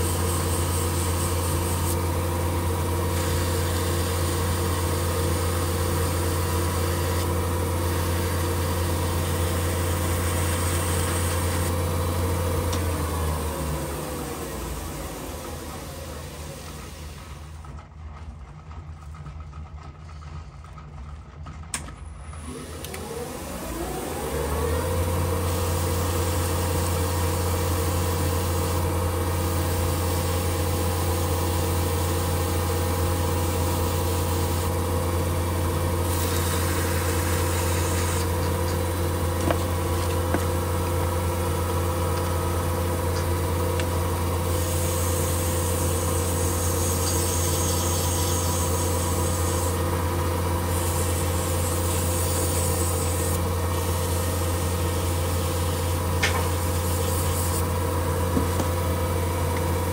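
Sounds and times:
lathe motor humming: 0.0s - 17.7s, 22.4s - 59.9s
sandpaper hissing on metal: 44.6s - 49.8s, 50.6s - 55.9s, 56.5s - 57.7s.

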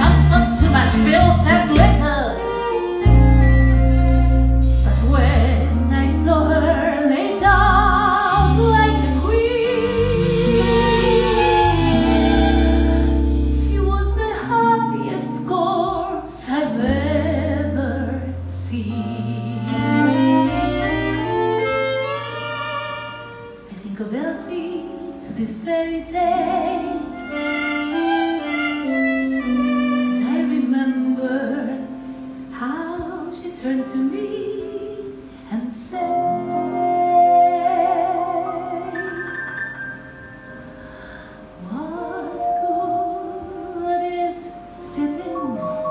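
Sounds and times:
orchestral backing: 0.0s - 45.9s
singer holding notes with vibrato: 0.0s - 45.9s
heavy bass line: 7.4s - 14.3s.

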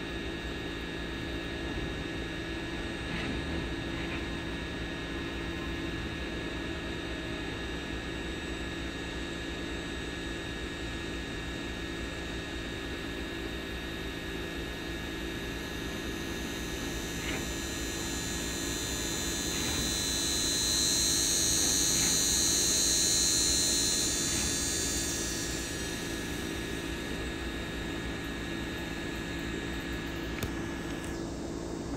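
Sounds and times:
drone propellers humming: 15.9s - 31.9s
higher whine: 17.4s - 31.9s.

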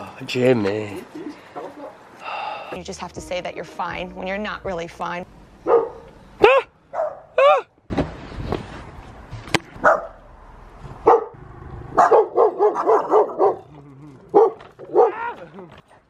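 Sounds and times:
dog barking: 5.6s - 7.4s, 9.8s - 10.2s, 11.0s - 11.4s, 12.0s - 13.7s, 14.3s - 15.4s
dull thud: 7.9s - 9.7s.

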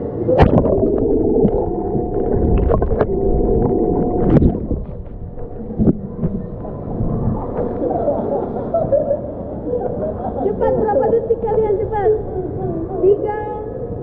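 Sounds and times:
steady hum: 0.0s - 8.0s
underwater sloshing and gurgling: 0.0s - 9.6s
underwater clicks and knocks: 0.4s - 7.8s.

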